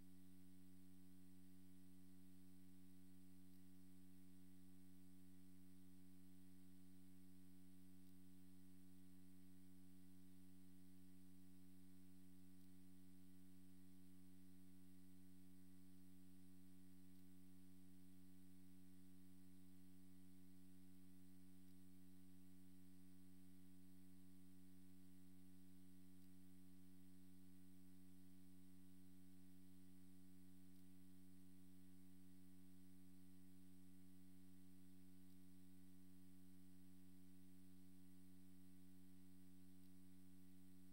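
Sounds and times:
steady electrical hum: 0.0 - 40.9.

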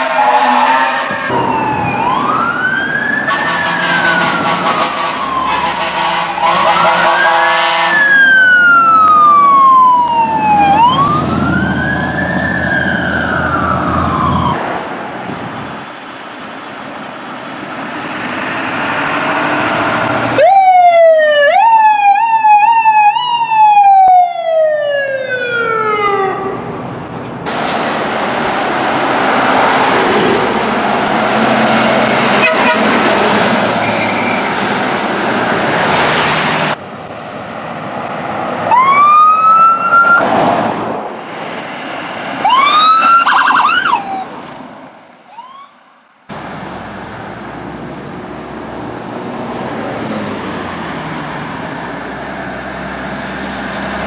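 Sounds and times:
siren wailing: 0.0 - 14.7, 20.3 - 26.7, 38.6 - 40.3, 42.4 - 44.3, 45.3 - 45.9
heavy truck running: 0.0 - 20.5, 26.6 - 39.0, 46.3 - 54.0
short rising siren whoops: 0.2 - 5.7, 8.0 - 14.6, 38.7 - 40.3, 42.4 - 44.3, 45.3 - 45.8
loud rushing noise: 1.0 - 7.3, 26.6 - 38.8.

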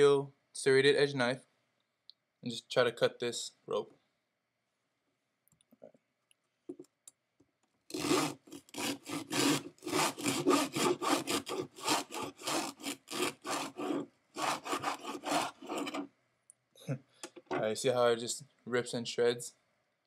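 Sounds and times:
serrated knife sawing rope: 7.9 - 16.1.

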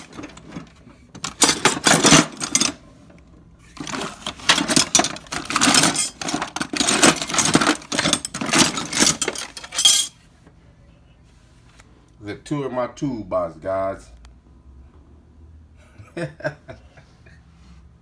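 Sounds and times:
metal tools clinking and rattling: 0.0 - 2.8, 3.8 - 10.2.

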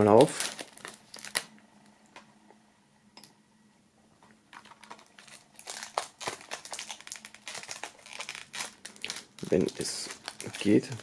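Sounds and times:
plastic shrink wrap crinkling: 0.0 - 1.6, 4.5 - 11.0.

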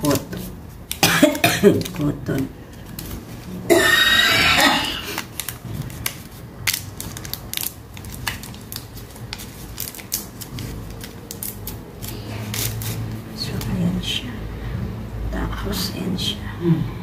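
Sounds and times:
plastic packaging crinkling: 0.0 - 3.6, 4.8 - 13.7.

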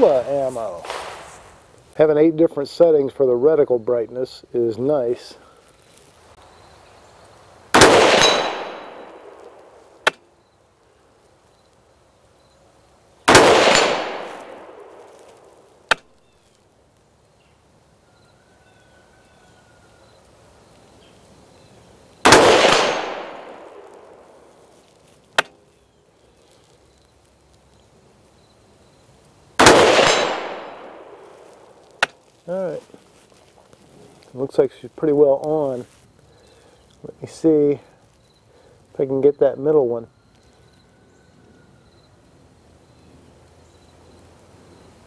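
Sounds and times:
rifle shots: 7.7 - 10.2, 13.3 - 15.1, 22.2 - 24.3, 29.6 - 31.3.

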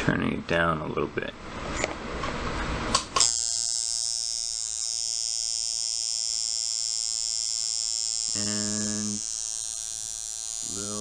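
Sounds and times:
tattoo machine buzzing: 3.2 - 11.0.

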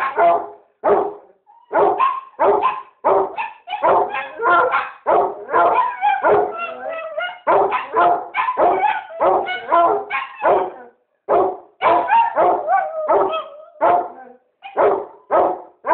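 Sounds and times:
dogs barking: 0.0 - 15.9.

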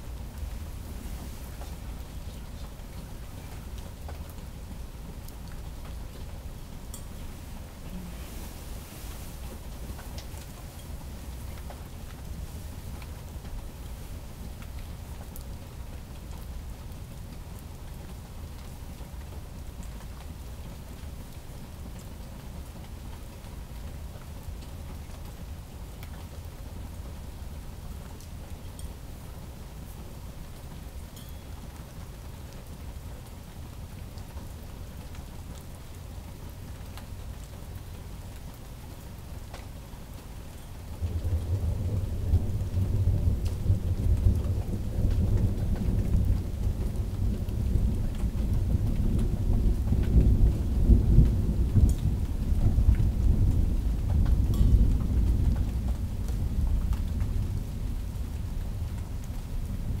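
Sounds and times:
steady rain: 0.0 - 60.0
low roll of thunder: 40.8 - 60.0.

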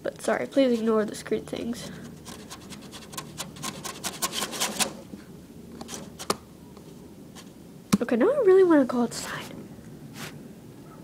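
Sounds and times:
hand scratching and rubbing: 2.0 - 5.2, 5.8 - 6.4.

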